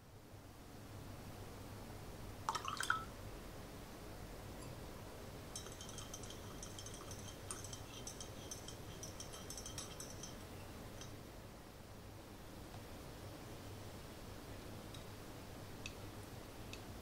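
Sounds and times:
whisk clinking against glass: 5.5 - 11.2.

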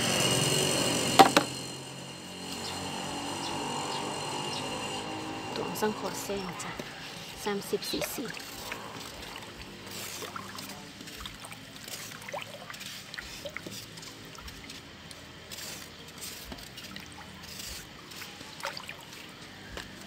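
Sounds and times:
water sloshing and swirling: 6.4 - 20.0.

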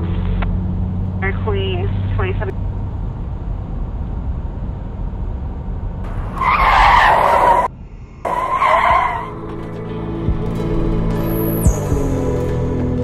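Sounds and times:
car tyres screeching: 0.0 - 9.8
car engine rumble: 0.0 - 13.0.

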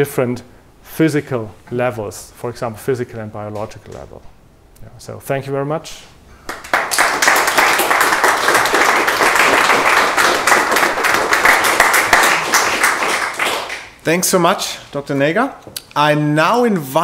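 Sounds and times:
audience applauding: 6.5 - 14.0.

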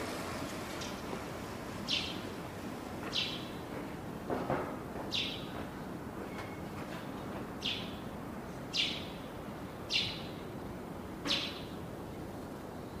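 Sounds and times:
steady background noise: 0.0 - 13.0
bird chirping: 1.9 - 2.2, 3.1 - 3.6, 5.1 - 5.5, 7.6 - 8.0, 8.7 - 9.2, 9.9 - 10.4, 11.3 - 11.8.

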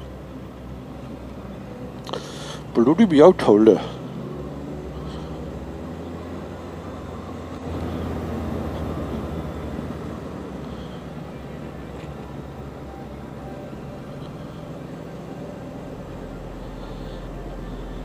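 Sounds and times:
motorcycle engine running: 3.7 - 18.0.

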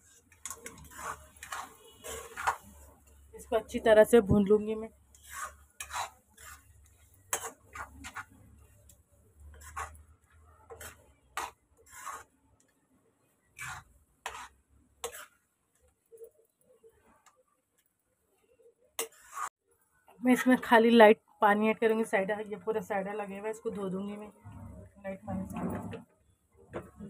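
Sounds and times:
metal spatula scraping a wok: 0.0 - 12.4, 13.3 - 17.3, 19.0 - 19.6, 24.4 - 26.1.

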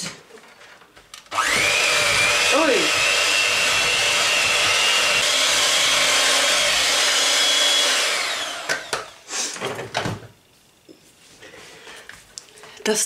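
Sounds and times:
electric hand mixer running: 1.3 - 9.2
mixer knocking and clattering: 1.4 - 10.3.

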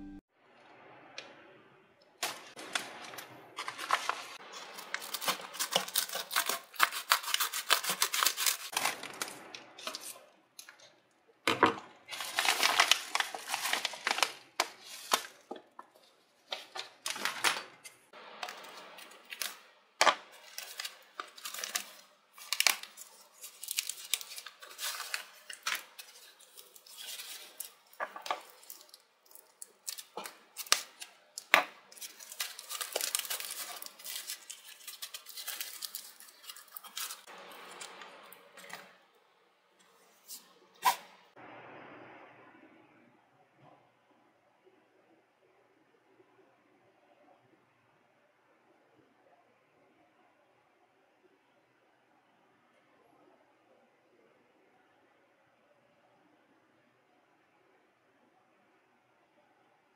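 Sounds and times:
paper packaging rustling and tearing: 2.2 - 10.9, 12.0 - 39.0, 40.1 - 41.1
scissors snipping foam wrap: 3.6 - 9.2, 20.4 - 37.8.

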